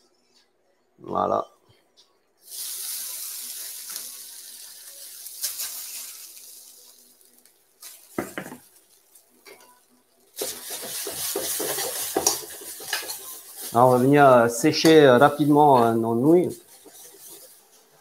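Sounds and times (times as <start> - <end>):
noodles sizzling in oil: 2.4 - 18.0
stirring in wok: 10.3 - 18.0.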